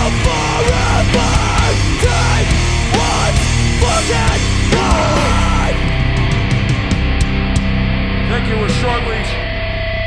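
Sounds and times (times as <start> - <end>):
punk band playing live: 0.0 - 10.0
cymbal and drum hits: 5.0 - 6.8.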